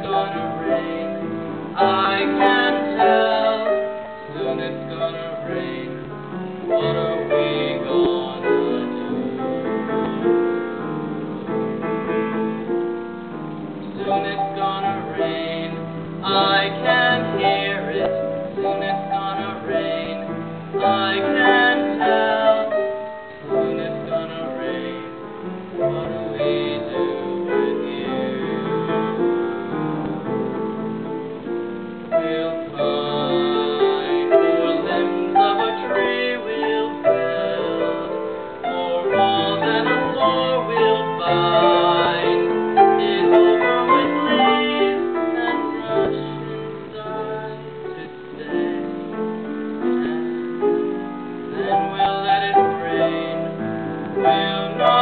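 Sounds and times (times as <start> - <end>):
man singing a slow ballad: 0.0 - 9.2, 14.0 - 22.7, 23.5 - 25.2, 25.8 - 28.9, 32.2 - 49.1, 51.5 - 55.0
grand piano chords: 0.0 - 55.0.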